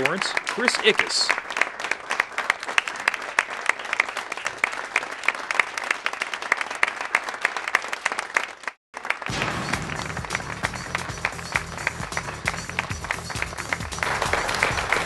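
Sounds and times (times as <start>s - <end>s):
audience applauding: 0.0s - 15.0s
bumper music: 9.3s - 15.0s.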